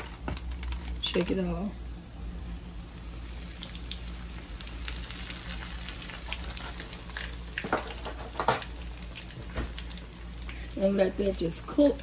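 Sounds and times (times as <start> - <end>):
cutlets sizzling in oil: 0.0 - 12.0.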